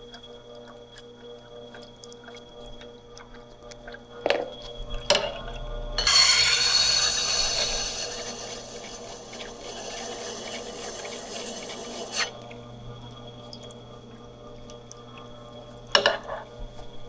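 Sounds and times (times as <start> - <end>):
grinder motor hum: 5.7 - 13.4
tool scraping on grindstone: 6.0 - 12.3.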